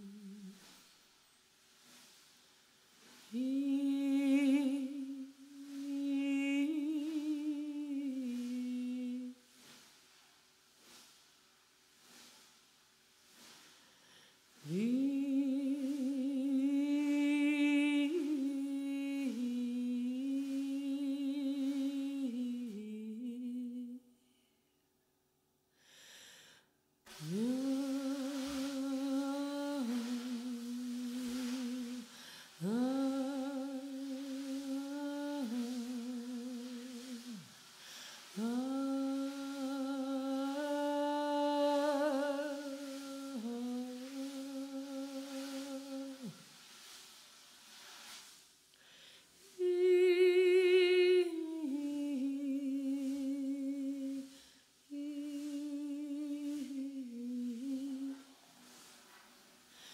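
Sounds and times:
person humming: 0:00.0 - 0:00.6, 0:03.3 - 0:09.4, 0:14.6 - 0:24.1, 0:27.1 - 0:37.5, 0:38.3 - 0:46.3, 0:54.9 - 0:58.3.

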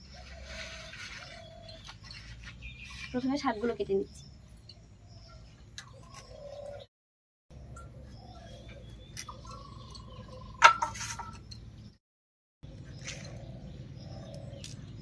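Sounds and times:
birds calling: 0:00.0 - 0:06.9, 0:07.5 - 0:12.0, 0:12.6 - 0:15.0.

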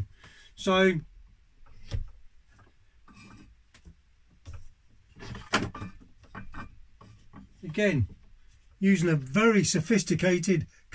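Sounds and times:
wood clattering: 0:01.6 - 0:08.8
wooden pieces knocking and scraping: 0:01.6 - 0:08.8.

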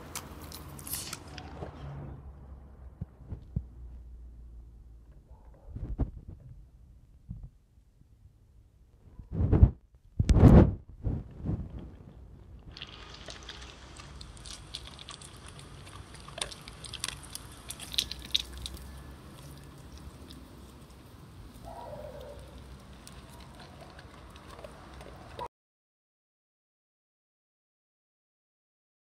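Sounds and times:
dog crunching dry kibble: 0:00.0 - 0:01.6, 0:12.7 - 0:25.5.

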